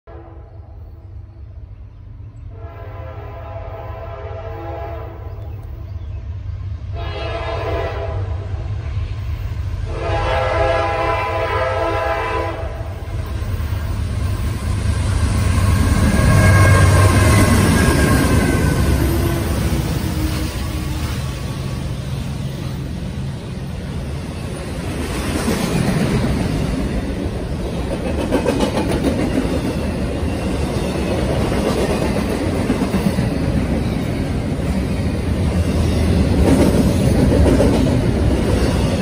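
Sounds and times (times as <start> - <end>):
locomotive horn blasts: 2.5 - 5.3, 7.0 - 8.6, 9.9 - 12.9
diesel engines and wheels rumbling: 7.7 - 28.3.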